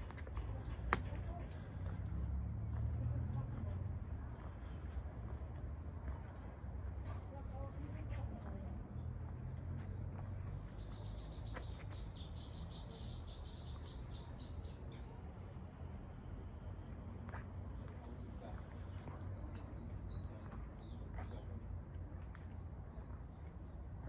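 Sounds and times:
songbird trilling and chirping: 0:10.7 - 0:15.3.

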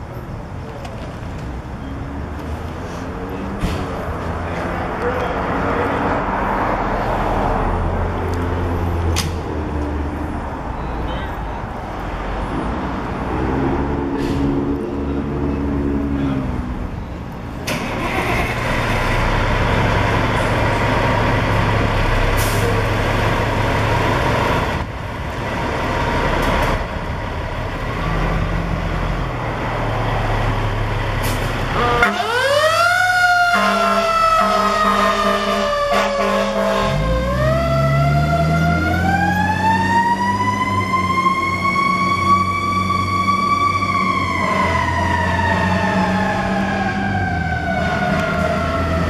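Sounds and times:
fire engine siren: 0:29.8 - 0:49.0.

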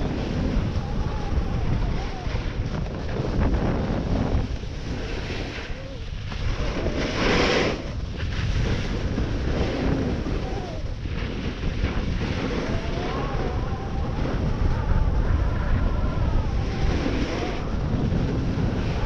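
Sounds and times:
snowboard scraping crusty snow: 0:00.0 - 0:19.0
wind rumbling on microphone: 0:00.0 - 0:19.0.

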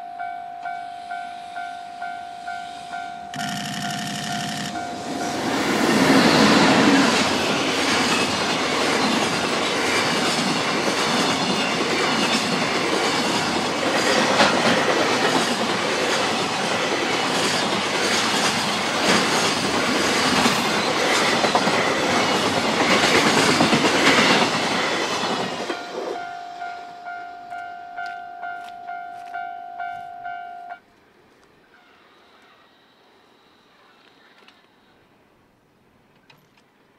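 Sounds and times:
pulsing ringing tone: 0:00.0 - 0:05.7, 0:25.7 - 0:30.8
train wheels rumbling on rail: 0:01.1 - 0:29.4
clickety-clack over rail joints: 0:07.0 - 0:25.8.

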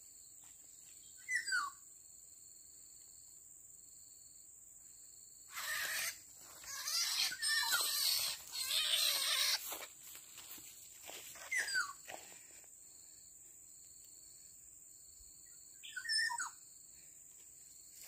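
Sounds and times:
bird distress squawks: 0:05.5 - 0:09.7.

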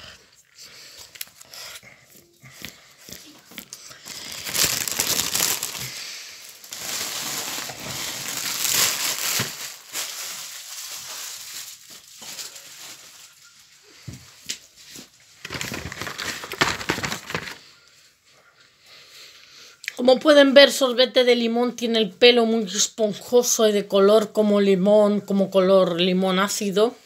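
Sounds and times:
packaging crinkling and rustling: 0:02.6 - 0:13.8, 0:14.4 - 0:17.7.

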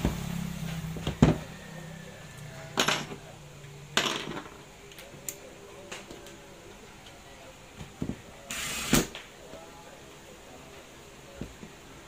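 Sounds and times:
tools knocking on workbench: 0:01.0 - 0:01.5.

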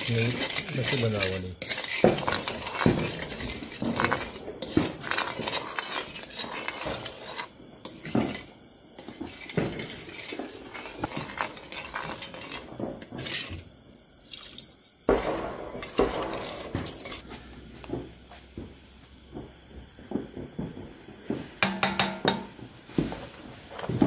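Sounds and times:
spatula scraping metal pan: 0:00.0 - 0:13.8, 0:15.1 - 0:17.4
knocks against metal: 0:21.6 - 0:22.5.

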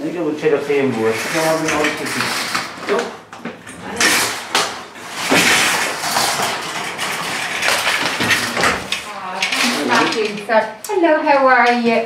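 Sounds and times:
metal trolley rattling over mat: 0:05.0 - 0:10.4.

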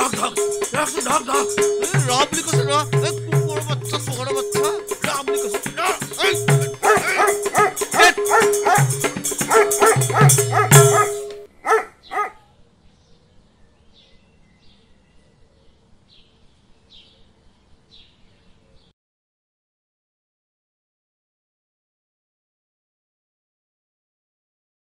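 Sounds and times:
background music: 0:00.0 - 0:11.5
dog barking: 0:06.8 - 0:12.5.

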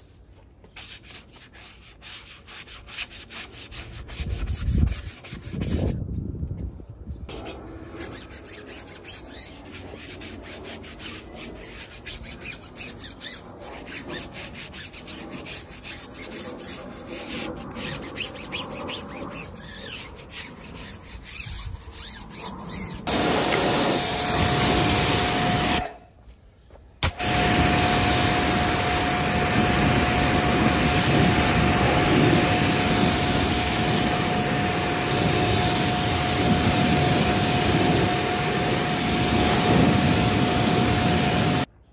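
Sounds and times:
stiff brush scrubbing wheel: 0:07.3 - 0:25.9, 0:27.0 - 0:41.7
spray hissing: 0:22.7 - 0:25.9, 0:27.0 - 0:41.7
pressure washer motor hum: 0:23.1 - 0:25.9, 0:27.0 - 0:41.7.

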